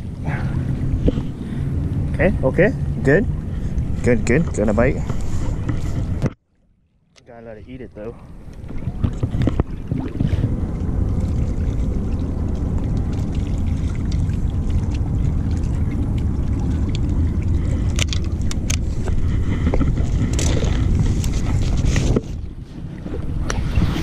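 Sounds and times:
wind buffeting microphone: 0.0 - 6.4, 7.7 - 24.0
fishing gear clicking and rattling: 17.8 - 22.4.

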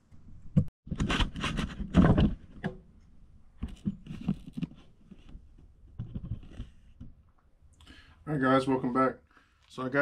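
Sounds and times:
rustling and knocking: 0.6 - 3.0, 3.6 - 7.3.

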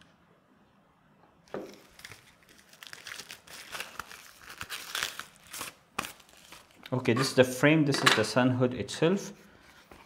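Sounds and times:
packaging wrap crinkling: 1.5 - 7.0.

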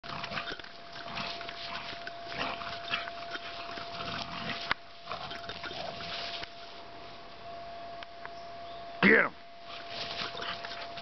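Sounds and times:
dogs play-fighting: 0.0 - 6.8, 9.6 - 11.0
faint steady tone: 0.6 - 11.0.

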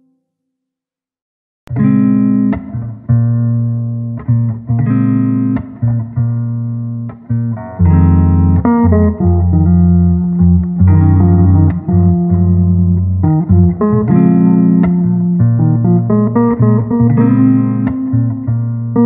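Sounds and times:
plucked guitar chords: 1.7 - 19.0.

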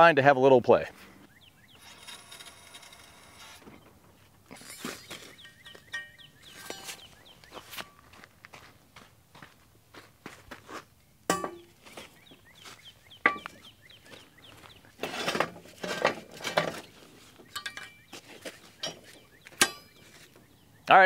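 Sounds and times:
steel-on-steel clatter: 1.8 - 4.0
metal clanks ringing: 1.8 - 7.1, 11.3 - 11.8, 13.2 - 13.6, 17.5 - 18.0, 18.8 - 20.0
footsteps on dirt: 4.0 - 15.0, 16.8 - 20.5
metal clinks: 4.5 - 7.1, 17.5 - 18.0.

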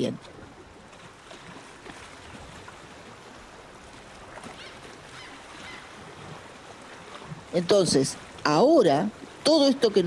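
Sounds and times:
running water: 0.0 - 10.0
faint bird calls: 4.4 - 6.0.

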